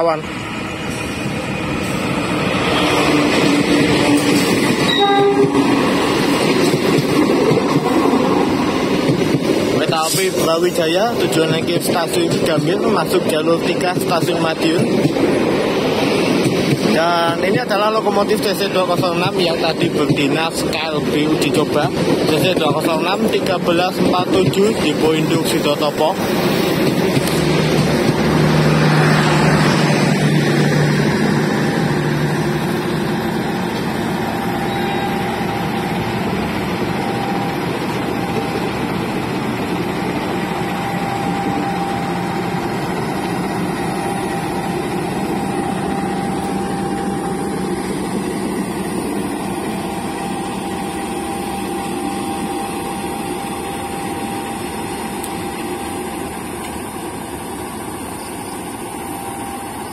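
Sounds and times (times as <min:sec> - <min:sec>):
diesel locomotive engine running: 0:00.0 - 0:59.9.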